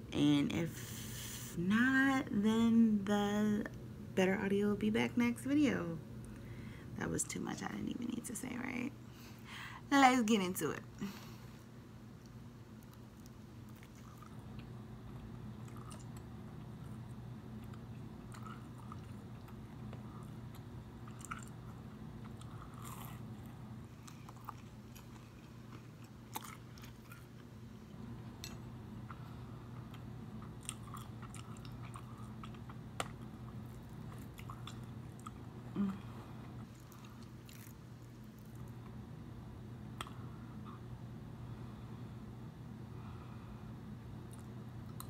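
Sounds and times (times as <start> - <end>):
low background hum: 0.0 - 45.0
crunchy chewing of bread: 12.7 - 27.7, 28.4 - 39.0.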